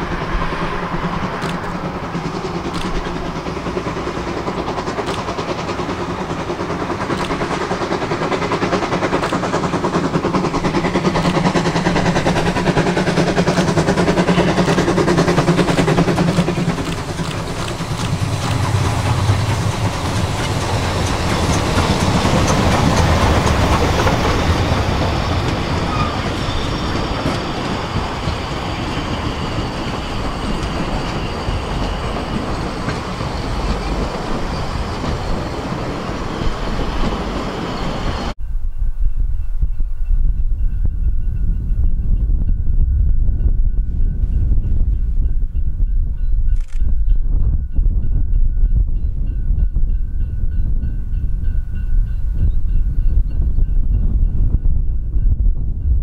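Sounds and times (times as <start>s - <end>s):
wheels clattering on rails: 0.0s - 38.4s
steam locomotive rumble: 0.0s - 56.0s
high-pitched wheel squeals: 24.1s - 38.4s.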